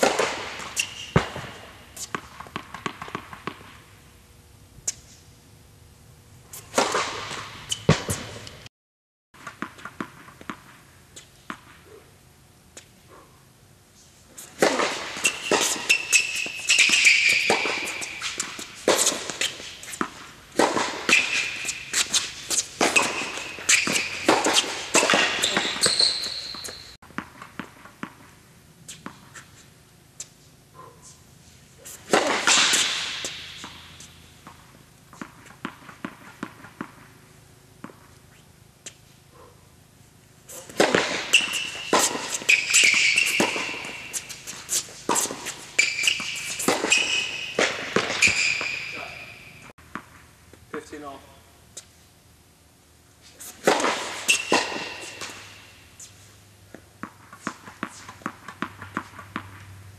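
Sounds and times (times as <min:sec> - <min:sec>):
racket hitting tennis ball: 0:00.0 - 0:03.8, 0:06.5 - 0:08.6, 0:14.4 - 0:29.6, 0:31.8 - 0:38.2, 0:40.5 - 0:51.2, 0:53.3 - 0:59.7
tennis ball bouncing: 0:00.0 - 0:03.8, 0:06.6 - 0:08.6, 0:09.4 - 0:11.8, 0:14.4 - 0:29.4, 0:32.0 - 0:38.2, 0:40.5 - 0:50.9, 0:53.5 - 0:56.1, 0:56.7 - 0:59.8
sneakers squeaking on court: 0:00.0 - 0:03.9, 0:06.5 - 0:08.6, 0:14.4 - 0:28.3, 0:31.8 - 0:39.6, 0:40.5 - 0:50.2, 0:53.4 - 0:59.8.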